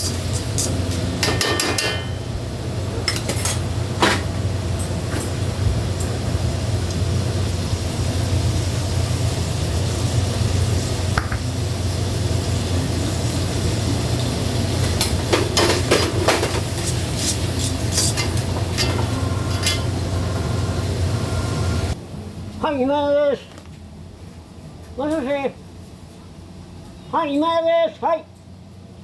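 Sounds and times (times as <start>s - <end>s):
food sizzling: 0.0s - 22.0s
steady low hum: 0.0s - 27.1s
metal utensils clinking and scraping: 15.3s - 19.9s.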